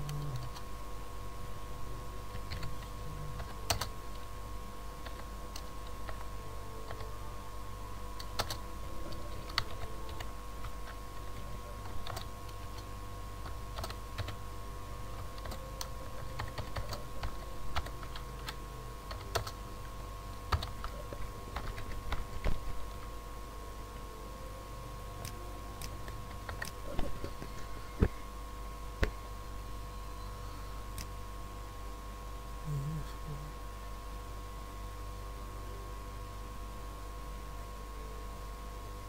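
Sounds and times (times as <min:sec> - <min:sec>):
steady low hum: 0:00.0 - 0:39.0
typing on computer keyboard: 0:02.4 - 0:02.8, 0:08.2 - 0:12.3, 0:13.4 - 0:14.4, 0:15.4 - 0:15.6, 0:16.2 - 0:19.6.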